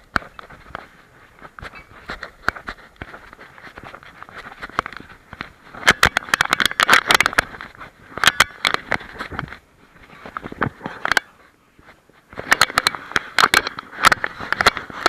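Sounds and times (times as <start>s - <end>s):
camera rubbing against dog fur: 0.2s - 5.9s.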